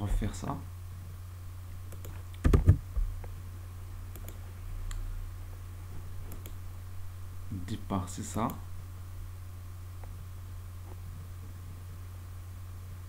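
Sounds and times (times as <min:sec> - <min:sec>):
steady low hum: 0:00.0 - 0:13.0
keyboard and mouse clicks: 0:01.9 - 0:02.8, 0:04.1 - 0:04.4, 0:06.3 - 0:06.6.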